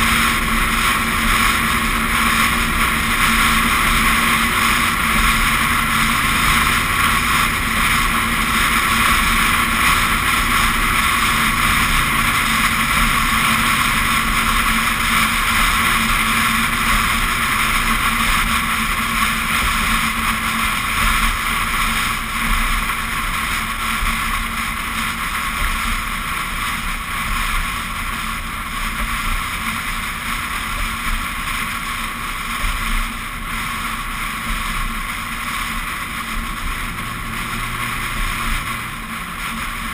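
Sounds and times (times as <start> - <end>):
engine and tyres humming: 0.0 - 39.9
road noise: 0.0 - 39.9.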